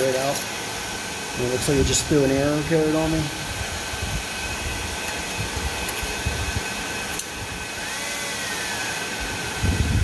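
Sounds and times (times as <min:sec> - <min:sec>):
cooling fans whining: 0:00.0 - 0:10.0.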